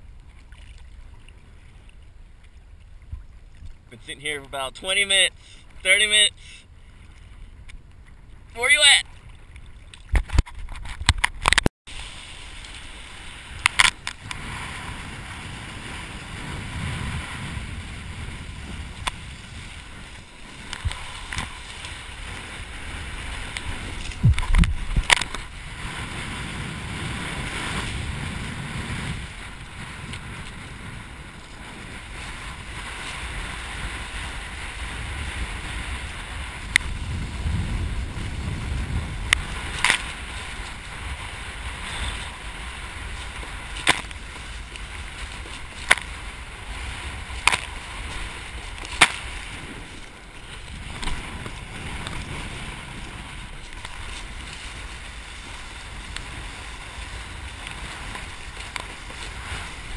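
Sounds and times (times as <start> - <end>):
wind buffeting microphone: 12.9 - 59.9
water splashing against board: 43.2 - 46.4, 47.2 - 52.4
sharp splashes or knocks: 43.7 - 44.3, 47.4 - 47.9, 48.7 - 49.6.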